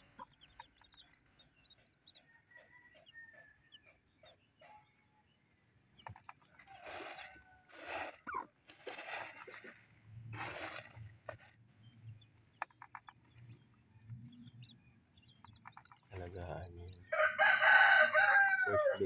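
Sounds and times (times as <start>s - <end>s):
hen clucking softly: 0.0s - 4.9s, 6.0s - 8.6s
chicken feed swept on cardboard: 6.6s - 9.7s, 10.3s - 11.5s.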